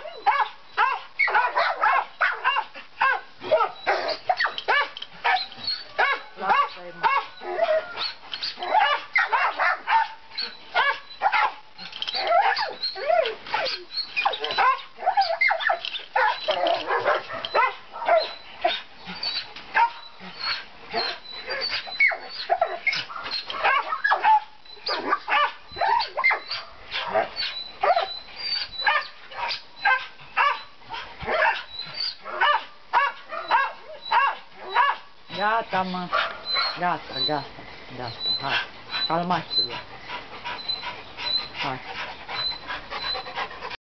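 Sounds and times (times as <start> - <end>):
dogs barking and yelping: 0.0 - 43.8.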